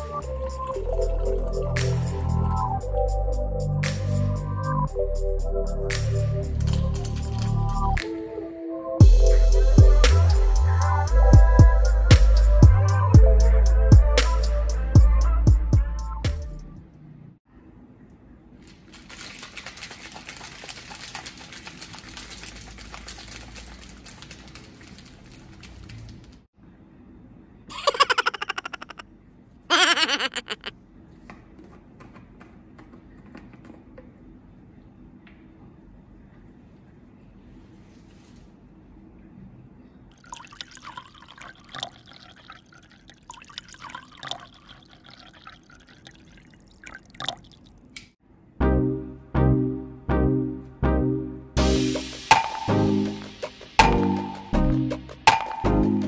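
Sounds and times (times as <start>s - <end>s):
liquid pouring over ice: 18.9s - 26.0s, 40.1s - 47.9s
cocktail shaker rattling: 18.9s - 26.2s.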